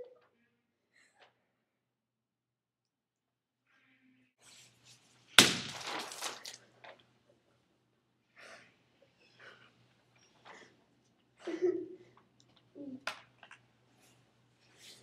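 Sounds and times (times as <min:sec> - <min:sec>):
paint balloon bursting splat: 0:05.4 - 0:06.6
paint spattering: 0:05.4 - 0:06.6.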